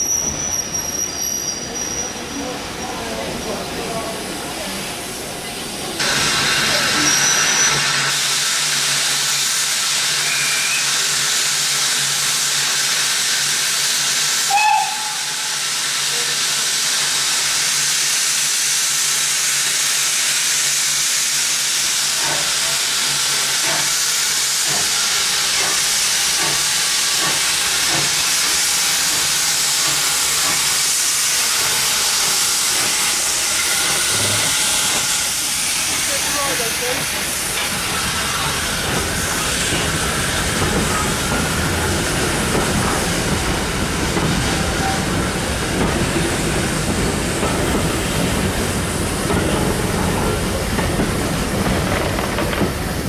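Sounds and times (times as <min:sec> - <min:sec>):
steam locomotive hissing: 0:00.0 - 0:53.0
locomotive chirp: 0:10.2 - 0:11.0.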